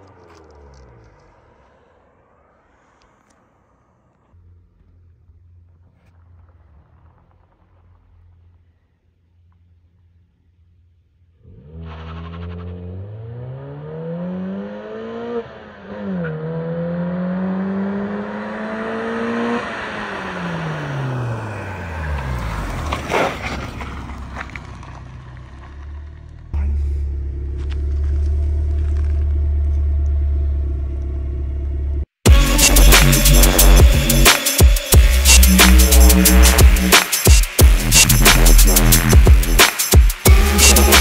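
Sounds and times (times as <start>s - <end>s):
exhaust idling low drone: 4.3s - 11.4s, 24.6s - 34.3s, 34.9s - 37.0s, 37.6s - 39.6s, 40.3s - 41.0s
car accelerating and passing by: 11.4s - 26.2s.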